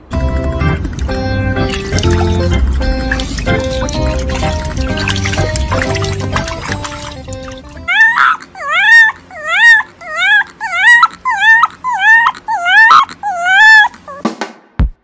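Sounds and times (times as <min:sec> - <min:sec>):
dog whimpering: 0:07.8 - 0:14.3.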